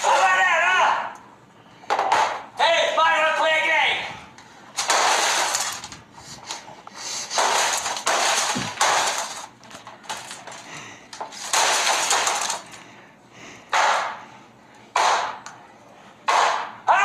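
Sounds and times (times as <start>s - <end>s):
glass smashing under hammer blows: 4.8s - 5.8s, 7.3s - 9.5s, 11.3s - 12.7s.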